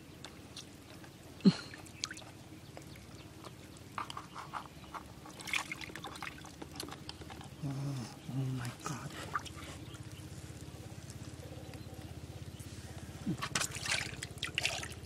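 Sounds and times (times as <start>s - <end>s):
small splashes in water: 1.6s - 3.5s, 5.3s - 7.2s, 13.4s - 15.0s.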